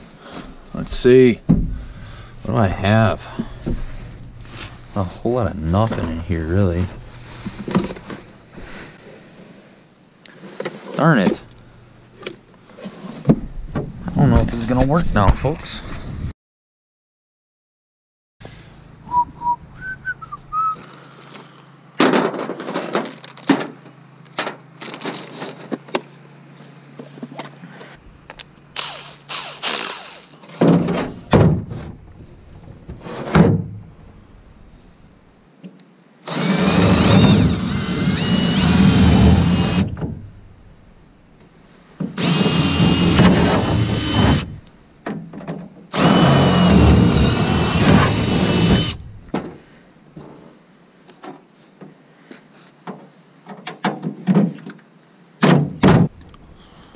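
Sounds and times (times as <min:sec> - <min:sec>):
knocks from handling wood and tools: 0:01.5 - 0:02.0
cordless drill whining: 0:28.8 - 0:30.4, 0:36.3 - 0:40.0, 0:42.2 - 0:44.7, 0:45.9 - 0:49.1.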